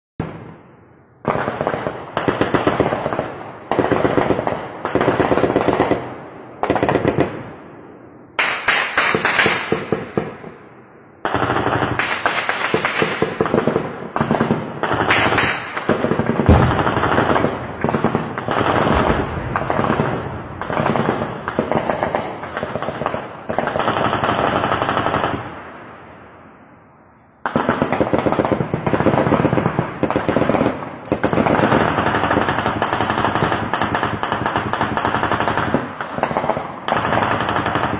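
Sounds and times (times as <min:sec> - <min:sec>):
automatic gunfire bursts: 0:08.4 - 0:10.1, 0:11.2 - 0:25.4.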